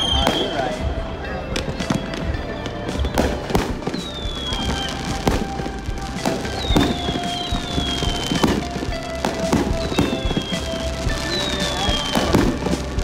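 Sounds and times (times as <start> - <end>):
fireworks whistles sliding down: 0.0 - 1.0, 1.6 - 13.0
fireworks bangs and crackles: 0.0 - 13.0.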